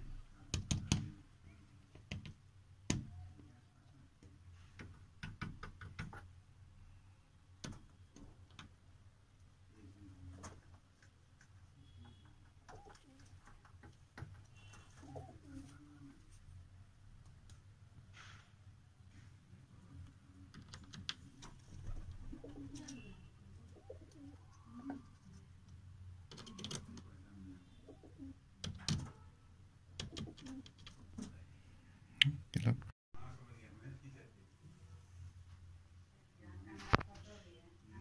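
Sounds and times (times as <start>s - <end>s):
pigeons cooing: 12.7s - 13.3s, 15.0s - 16.2s, 21.8s - 23.0s, 23.6s - 25.2s.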